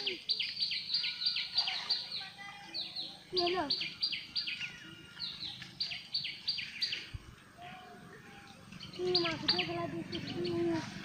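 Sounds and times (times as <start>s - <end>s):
bird calling: 7.8s - 11.0s.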